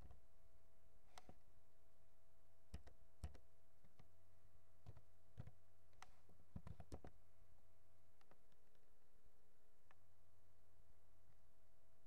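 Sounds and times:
laptop keyboard key clicks: 2.7 - 3.4.

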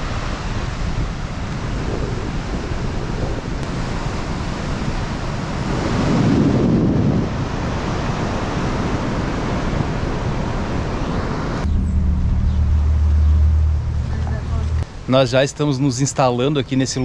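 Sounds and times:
sea surf washing onto beach: 0.0 - 11.6
wind buffeting microphone: 0.0 - 14.8
steady low hum: 11.6 - 15.1.

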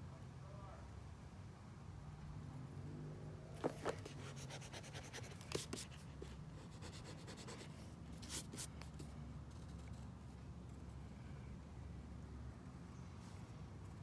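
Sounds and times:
pencil scratching on paper: 3.8 - 8.7.

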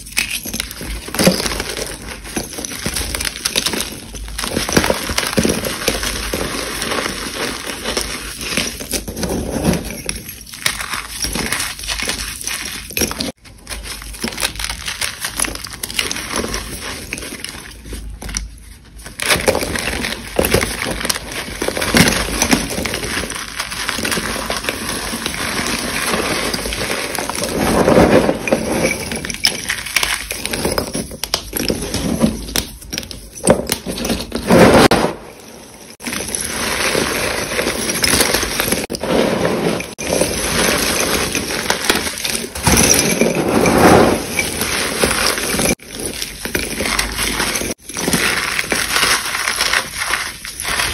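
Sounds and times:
chalk being crushed by hand: 35.9 - 50.9.

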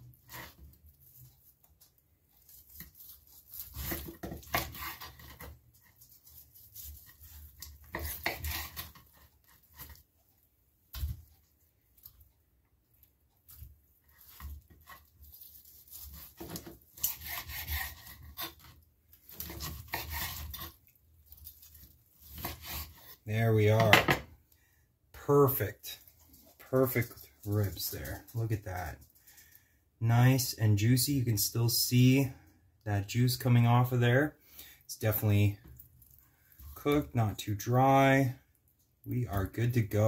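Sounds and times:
knife cutting ribs on wooden board: 2.3 - 10.0, 13.5 - 23.2.

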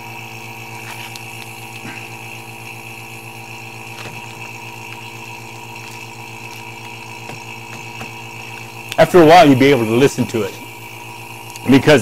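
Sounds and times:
electric vacuum pump humming: 0.0 - 12.0.

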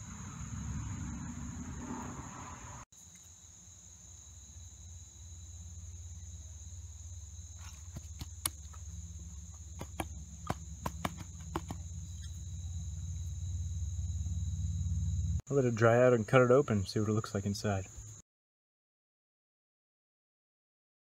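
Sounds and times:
low outdoor rumble: 0.0 - 2.9, 4.7 - 16.4
crickets trilling: 0.0 - 18.2.

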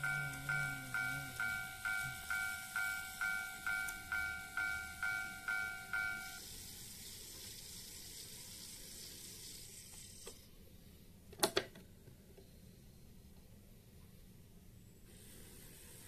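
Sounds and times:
level-crossing alarm bell ringing: 0.0 - 6.4
steady hiss: 0.0 - 11.2, 14.8 - 16.0.

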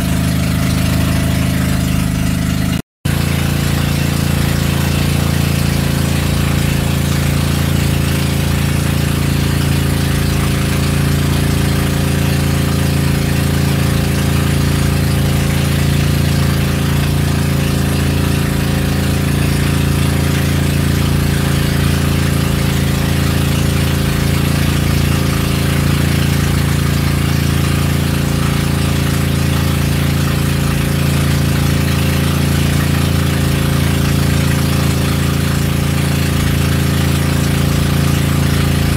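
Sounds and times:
boat engine droning: 0.0 - 38.9.

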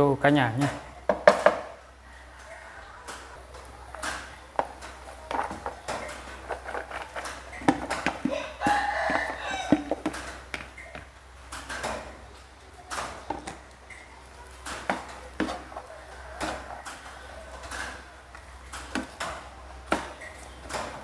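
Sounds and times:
wooden spatula scraping frying pan: 4.6 - 10.5, 14.7 - 17.1.

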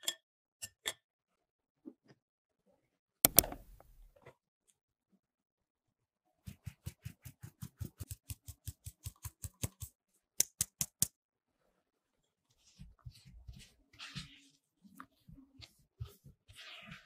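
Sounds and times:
metal sieve tapping: 3.3 - 4.0.

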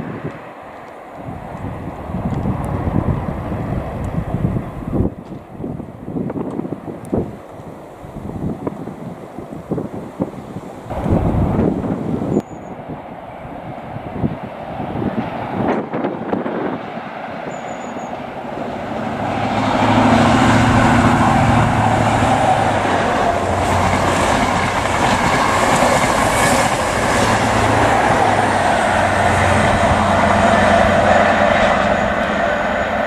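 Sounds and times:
diesel train engine running: 17.1 - 33.0
train wheels clattering on rails: 19.3 - 31.6.

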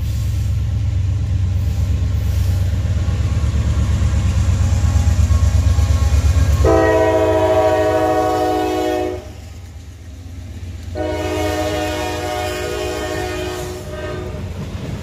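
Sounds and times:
locomotive air horn chord: 5.3 - 9.4, 10.9 - 14.4.

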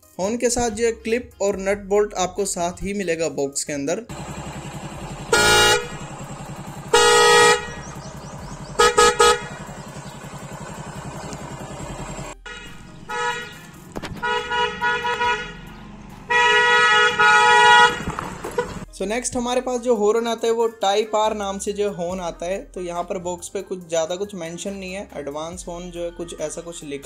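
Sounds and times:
motorcycle horn honks: 4.1 - 15.6, 16.3 - 18.8
motorcycle engine idling: 4.1 - 18.9.

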